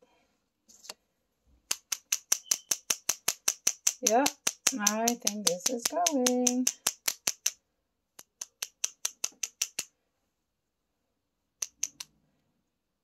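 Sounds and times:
finger flicking plastic syringe: 0:01.7 - 0:07.6, 0:08.2 - 0:09.9, 0:11.6 - 0:12.1.

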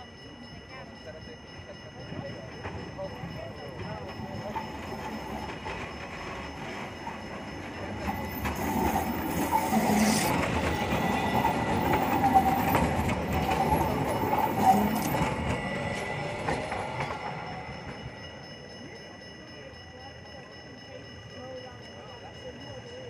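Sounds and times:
rail vehicle passing: 0:00.3 - 0:23.0
rail clatter: 0:02.1 - 0:18.4
wheel squeals: 0:08.0 - 0:18.1.

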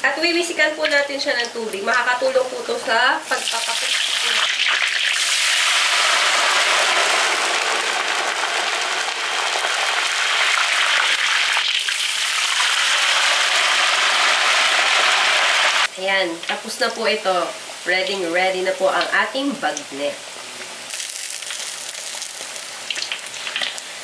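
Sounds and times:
meat deep-frying in oil: 0:00.0 - 0:24.0
hot oil spitting: 0:03.2 - 0:16.6, 0:20.8 - 0:24.0.

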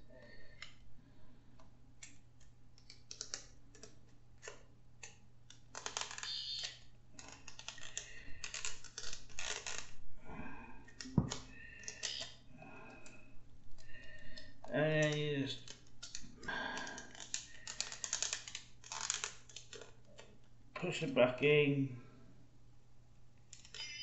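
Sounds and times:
small plastic clicks and rattles: 0:01.6 - 0:10.0, 0:10.9 - 0:20.5, 0:23.4 - 0:24.0.

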